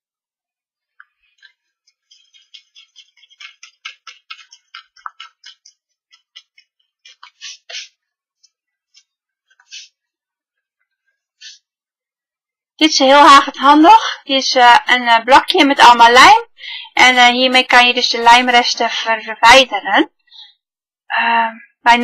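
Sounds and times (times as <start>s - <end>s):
eraser rubbing on cardstock: 2.0s - 8.0s, 9.5s - 10.0s.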